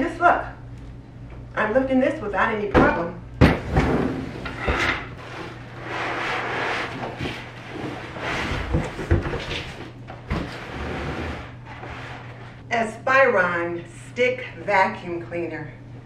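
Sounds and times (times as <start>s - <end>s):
cardboard flaps scraping: 3.9s - 12.6s.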